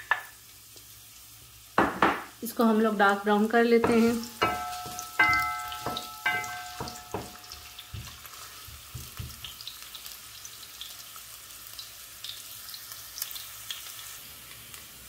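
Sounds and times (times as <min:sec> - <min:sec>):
onion sizzling in oil: 0:00.0 - 0:15.0
wooden spoon knocking pot: 0:03.8 - 0:09.5.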